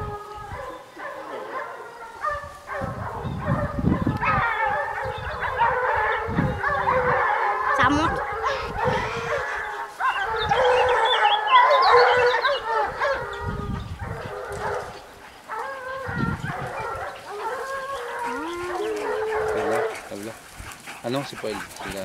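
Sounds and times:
hounds baying in chorus: 0:00.0 - 0:22.0
nearer hound baying: 0:00.5 - 0:22.0.

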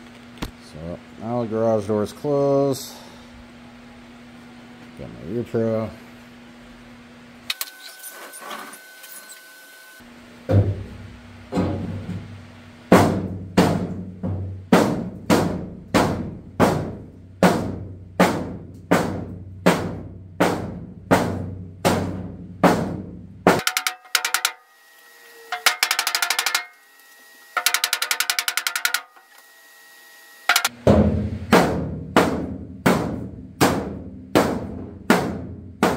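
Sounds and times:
rapid snare drum rolls: 0:12.9 - 0:24.6, 0:25.6 - 0:26.7, 0:27.6 - 0:29.1, 0:30.5 - 0:35.9
steady drum beat: 0:12.9 - 0:24.6, 0:25.5 - 0:26.7, 0:27.6 - 0:29.1, 0:30.5 - 0:35.9.

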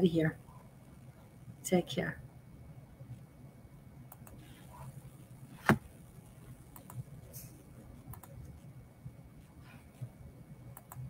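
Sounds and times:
low steady hum: 0:00.0 - 0:11.0
computer mouse clicks: 0:04.1 - 0:04.8, 0:06.7 - 0:07.5, 0:08.1 - 0:08.5, 0:10.7 - 0:11.0.

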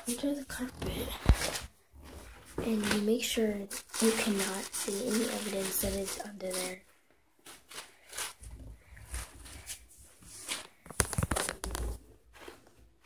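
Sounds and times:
bubble wrap crinkling and rustling: 0:00.0 - 0:13.0
bubble wrap popping: 0:02.6 - 0:06.8, 0:10.4 - 0:12.4.

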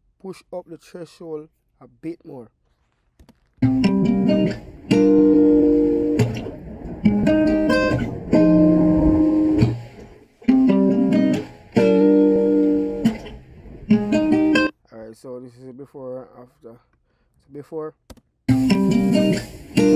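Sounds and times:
plucked chords: 0:03.6 - 0:14.7, 0:18.5 - 0:19.9.

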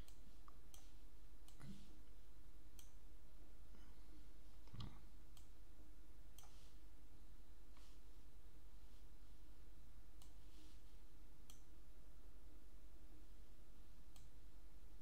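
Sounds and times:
computer mouse clicks: 0:00.0 - 0:01.9, 0:02.8 - 0:03.0, 0:04.6 - 0:05.6, 0:06.3 - 0:06.8, 0:10.2 - 0:10.5, 0:11.4 - 0:11.7, 0:14.1 - 0:14.4
faint low hum: 0:00.0 - 0:15.0.

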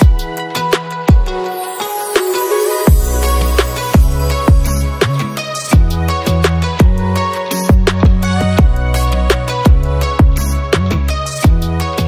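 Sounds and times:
deep kick drums: 0:02.9 - 0:03.2, 0:04.0 - 0:05.2, 0:05.8 - 0:09.0, 0:09.7 - 0:10.5, 0:11.5 - 0:11.7.

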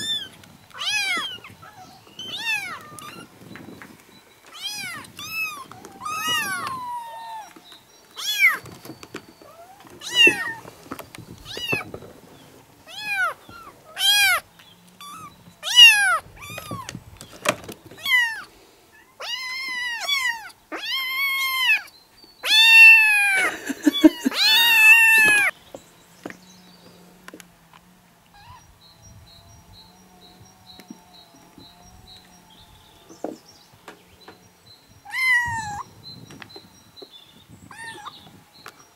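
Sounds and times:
kittens meowing: 0:00.0 - 0:03.5, 0:04.5 - 0:07.6, 0:08.2 - 0:08.7, 0:09.4 - 0:10.7, 0:11.4 - 0:11.9, 0:12.9 - 0:14.4, 0:15.0 - 0:17.0, 0:17.9 - 0:25.6, 0:28.3 - 0:28.7, 0:35.0 - 0:35.9, 0:37.6 - 0:38.4.

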